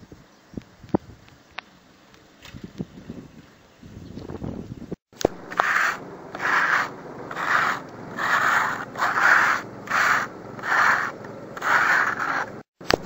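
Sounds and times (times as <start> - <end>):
trowel scraping adhesive on wall: 5.5 - 12.7.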